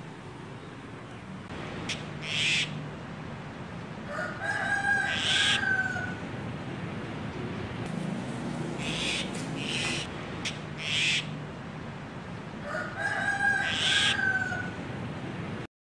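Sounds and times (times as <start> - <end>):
rooster crowing: 4.0 - 6.2, 12.6 - 14.8.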